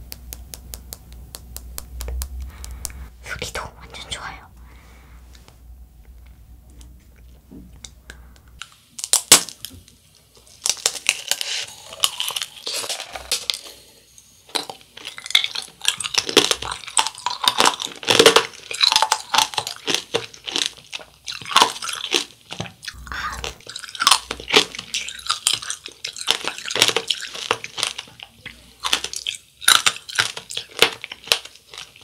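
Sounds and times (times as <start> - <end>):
candy shell cracking: 0.0 - 3.0, 7.8 - 13.7, 14.5 - 32.0
crunchy chewing: 14.5 - 32.0.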